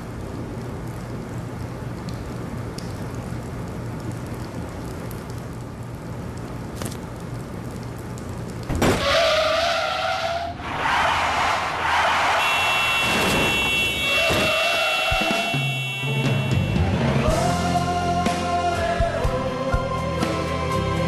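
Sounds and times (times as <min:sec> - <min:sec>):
car tyres screeching: 0:08.8 - 0:16.0
steady high-pitched tones: 0:12.4 - 0:17.0.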